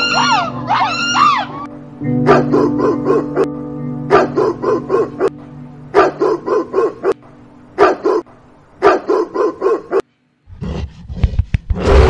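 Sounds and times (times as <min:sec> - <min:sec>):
background music with low notes: 0:00.0 - 0:08.5
dog barking: 0:02.2 - 0:03.5, 0:04.1 - 0:07.2, 0:07.8 - 0:10.0.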